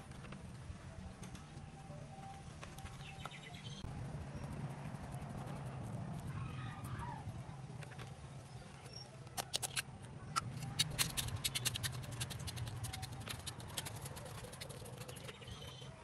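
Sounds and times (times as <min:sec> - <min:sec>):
metal tool scratching gritty soil: 0:09.4 - 0:09.8, 0:10.4 - 0:15.9.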